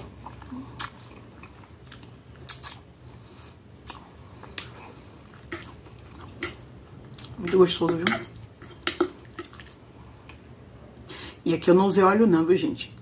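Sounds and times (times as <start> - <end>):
person chewing: 0.0 - 2.9, 3.8 - 7.6, 8.3 - 10.4
wet mouth smacks: 1.9 - 2.8.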